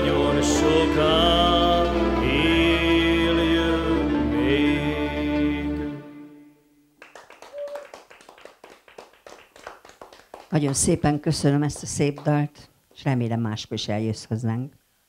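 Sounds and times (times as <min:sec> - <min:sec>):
man singing: 0:00.0 - 0:06.1
backing music: 0:00.0 - 0:06.6
people clapping: 0:07.0 - 0:13.1.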